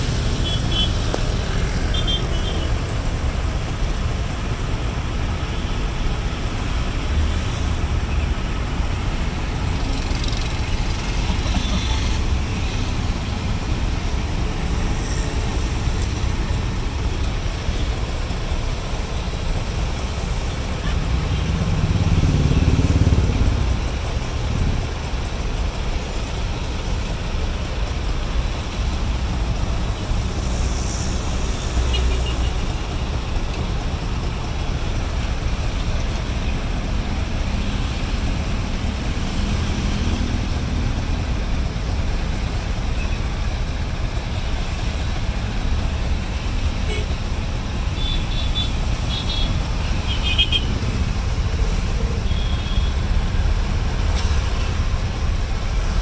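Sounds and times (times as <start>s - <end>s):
low rumble of city traffic: 0.0s - 56.0s.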